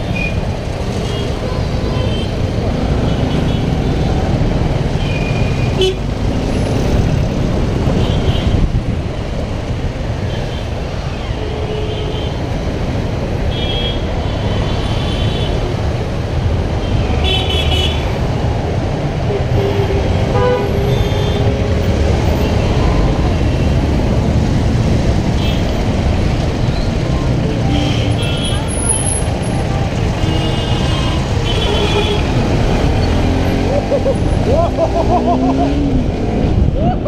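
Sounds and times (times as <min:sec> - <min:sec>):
vehicle horns tooting: 0:30.0 - 0:32.4.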